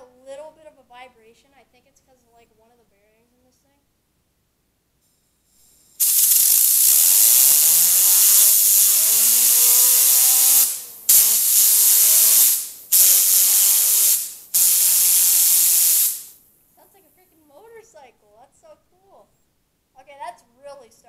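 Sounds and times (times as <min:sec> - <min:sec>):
fidget spinner buzzing whine: 0:05.0 - 0:16.4
compressed air hissing: 0:05.1 - 0:16.4.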